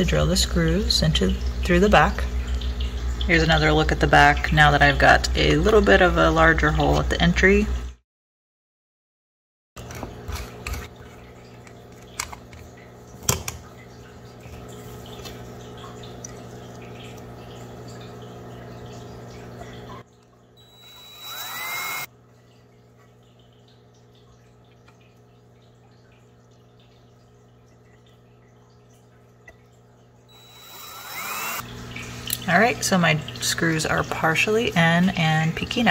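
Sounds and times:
drill driving a screw into wood: 0:20.6 - 0:22.1, 0:30.4 - 0:31.6
steady hum: 0:20.6 - 0:22.1, 0:30.3 - 0:33.2.

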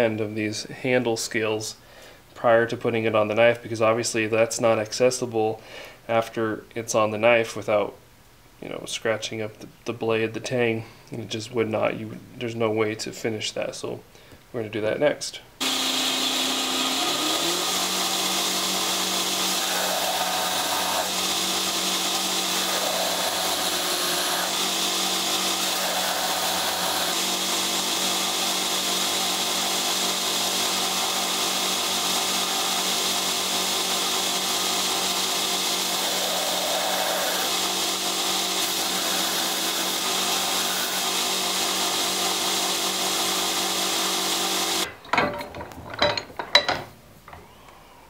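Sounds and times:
belt grinder motor humming: 0:15.6 - 0:44.9
grinding on sanding belt: 0:15.6 - 0:44.9.

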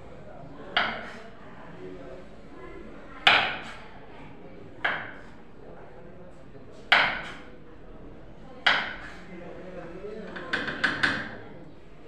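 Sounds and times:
knife chopping on wooden board: 0:00.8 - 0:01.1, 0:06.9 - 0:07.4, 0:08.7 - 0:09.1.

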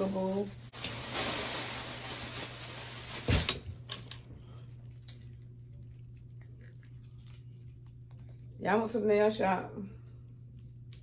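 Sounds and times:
steady low hum: 0:00.0 - 0:11.0
eating and chewing clicks: 0:04.9 - 0:08.6.

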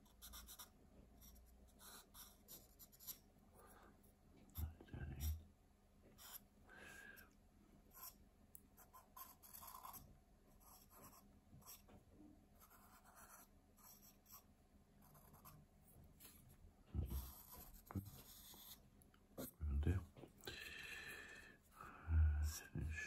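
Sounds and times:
pencil scratching on paper: 0:00.0 - 0:03.2, 0:06.2 - 0:06.4, 0:07.9 - 0:08.2, 0:08.8 - 0:11.9, 0:12.6 - 0:15.6, 0:17.0 - 0:18.8.

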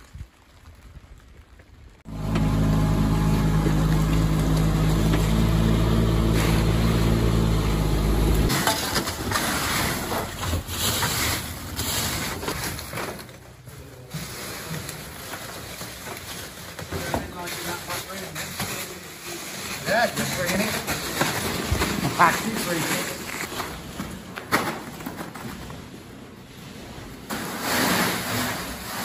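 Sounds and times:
gravel crunching and spilling: 0:00.0 - 0:29.0
crane engine humming: 0:02.1 - 0:08.5.

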